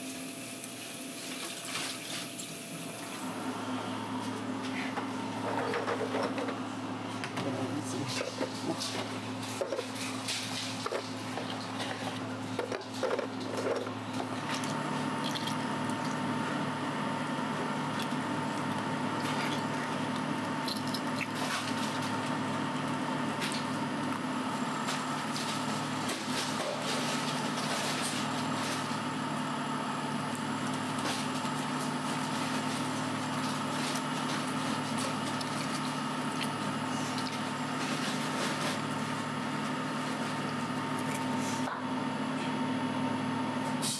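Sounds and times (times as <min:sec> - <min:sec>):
machine hum: 0:02.3 - 0:43.9
wet squishing of peeling eggs: 0:14.4 - 0:16.2, 0:34.8 - 0:37.7.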